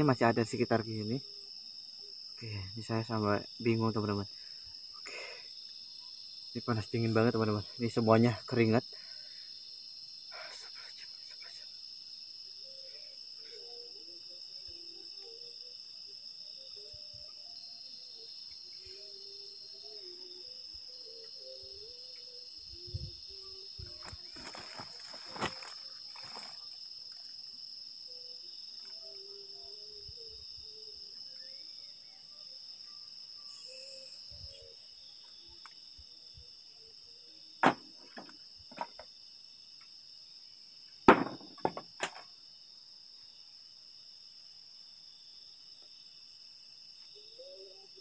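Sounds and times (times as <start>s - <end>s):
crickets and insects chirping: 0.0s - 48.0s
sharp knocks: 37.6s - 39.0s, 41.1s - 42.2s.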